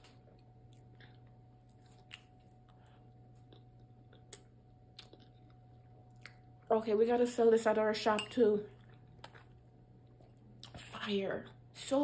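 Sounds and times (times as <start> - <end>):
faint chewing: 0.0 - 6.5, 8.6 - 10.8
faint steady hum: 0.0 - 12.0.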